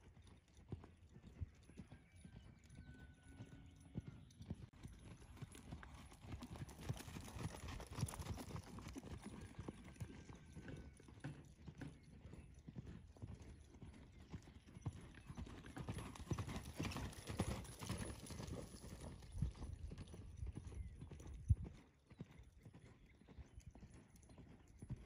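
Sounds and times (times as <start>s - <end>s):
horse hoofbeats on soft dirt: 0.0s - 25.0s.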